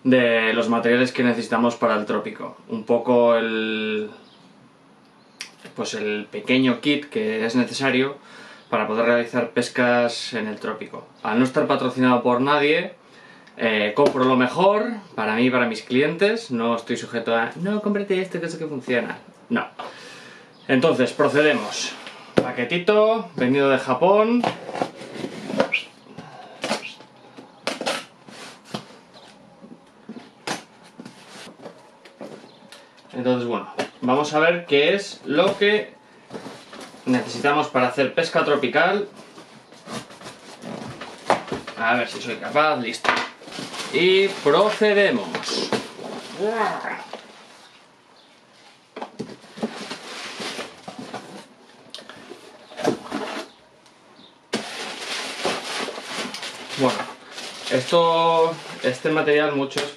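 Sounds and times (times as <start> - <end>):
packaging rustling and crinkling: 39.0 - 46.6, 49.1 - 51.6, 54.5 - 59.2.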